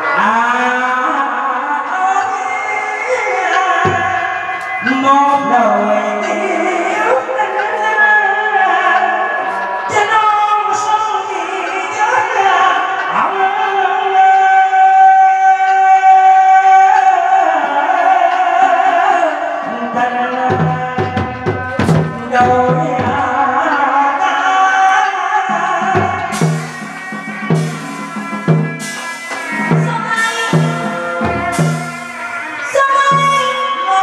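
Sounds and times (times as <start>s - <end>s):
drum strokes: 3.1s - 7.7s, 19.6s - 23.8s, 25.5s - 34.0s
sustained pitched melody: 25.5s - 34.0s
cymbal crash: 26.0s - 33.8s.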